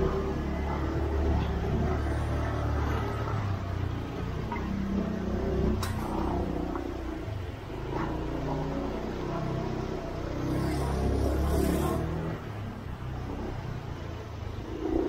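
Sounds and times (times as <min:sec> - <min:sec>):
motor scooter engine rumbling: 0:00.0 - 0:15.0
sharp click: 0:05.8 - 0:06.2.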